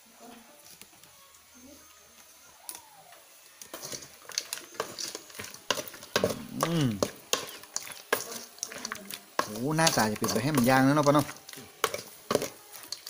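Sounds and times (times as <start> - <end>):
light sizzle: 0.0 - 13.0
man's drawn-out vocal sound: 6.4 - 7.0.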